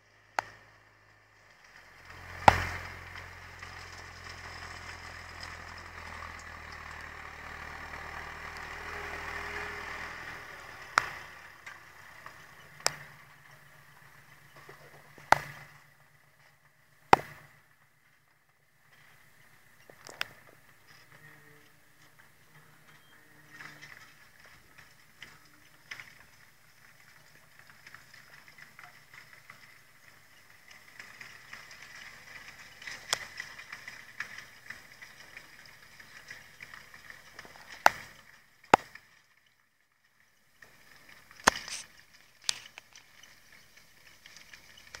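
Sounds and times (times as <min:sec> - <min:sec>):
crackling noise: 0:00.0 - 0:45.0
distant tractor working: 0:00.0 - 0:45.0
sharp clicks: 0:41.4 - 0:43.2.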